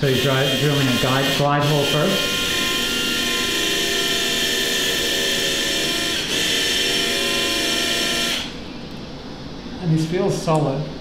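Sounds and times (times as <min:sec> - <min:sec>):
surgical drill whining: 0:00.0 - 0:08.8.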